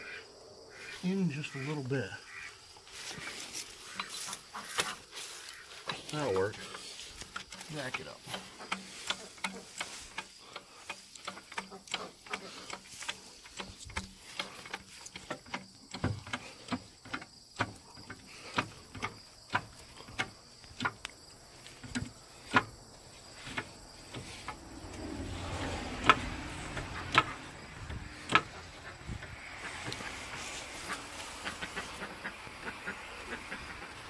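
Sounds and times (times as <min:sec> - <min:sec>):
rubbing hiss with clicks: 0:28.8 - 0:34.0.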